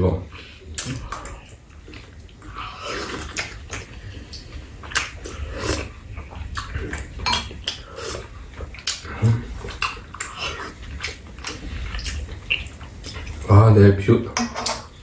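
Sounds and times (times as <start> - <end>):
noodles slurped and chewed: 0.4 - 13.6.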